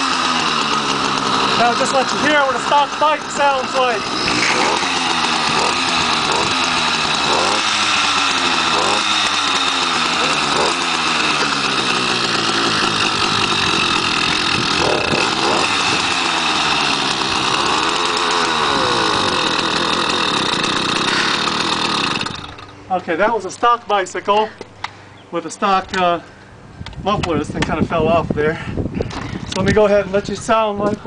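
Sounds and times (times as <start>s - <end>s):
two-stroke engine revving: 0.0s - 23.3s.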